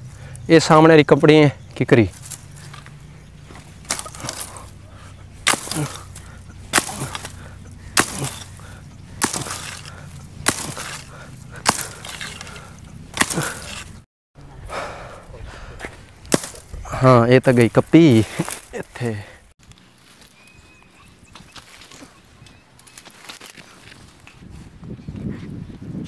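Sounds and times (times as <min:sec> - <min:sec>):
branches being chopped with blade: 0:02.1 - 0:14.0, 0:16.1 - 0:20.3, 0:21.4 - 0:24.2.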